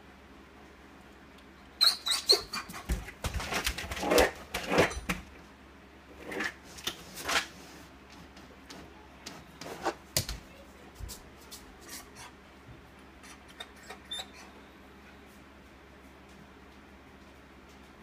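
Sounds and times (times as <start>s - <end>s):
puppy whining: 1.7s - 3.0s, 13.2s - 14.7s
dog scratching at a door: 2.2s - 5.2s.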